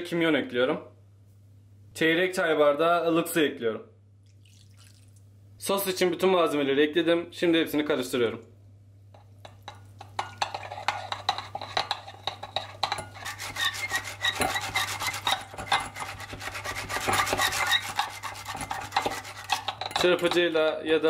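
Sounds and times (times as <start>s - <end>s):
wire whisk scraping glass bowl: 9.6s - 20.5s.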